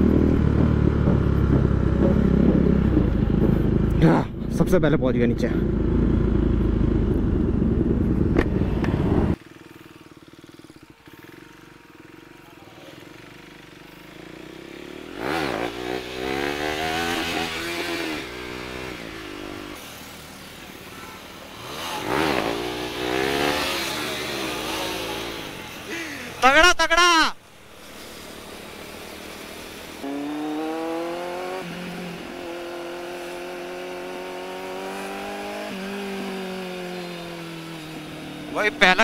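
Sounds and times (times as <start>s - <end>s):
motorcycle engine revving: 0.0s - 26.4s, 27.7s - 39.0s.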